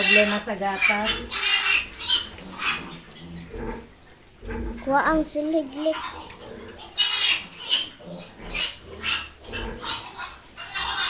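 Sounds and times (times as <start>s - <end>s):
piglets squealing: 0.0s - 3.8s, 5.7s - 11.0s.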